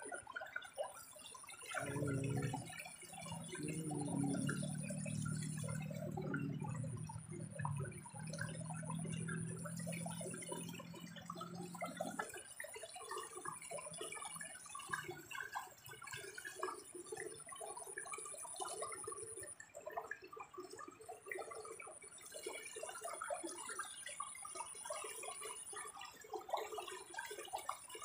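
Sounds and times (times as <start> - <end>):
water splashing and dripping: 0.0 - 28.0
low hum: 1.8 - 12.2.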